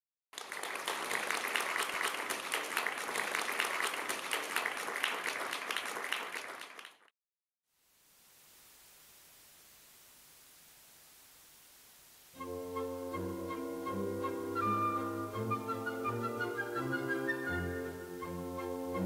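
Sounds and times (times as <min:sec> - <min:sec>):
audience applauding: 0:00.3 - 0:07.1
faint steady hiss: 0:07.7 - 0:19.0.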